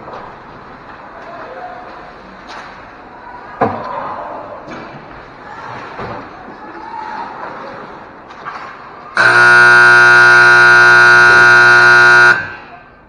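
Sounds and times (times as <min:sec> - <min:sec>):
arena horn blast: 0:09.2 - 0:12.8.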